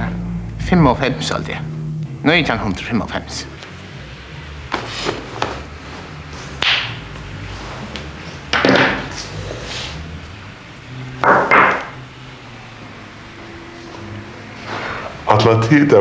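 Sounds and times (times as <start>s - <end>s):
low steady hum: 0.0s - 16.0s
breathy rustling hisses: 9.2s - 10.2s.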